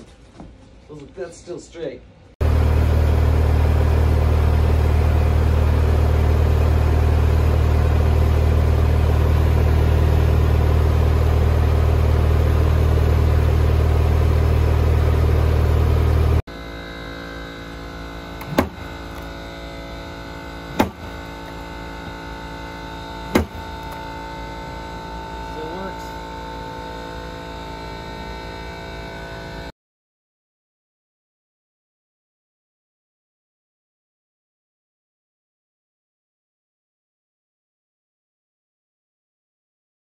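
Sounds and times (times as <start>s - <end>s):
loud low mechanical drone: 2.4s - 29.7s.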